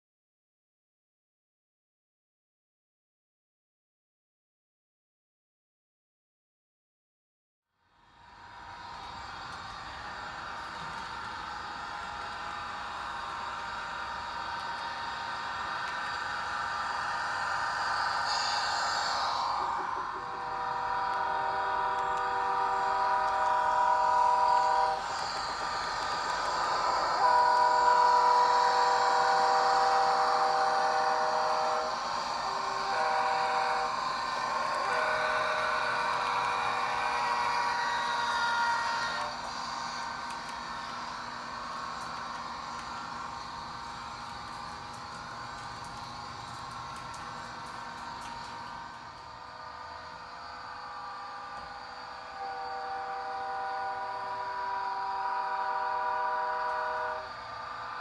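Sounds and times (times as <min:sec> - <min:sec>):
model train diesel engine sound: 0:07.8 - 0:58.0
train air horn blasts: 0:17.4 - 0:26.0, 0:26.7 - 0:40.2, 0:51.1 - 0:57.6.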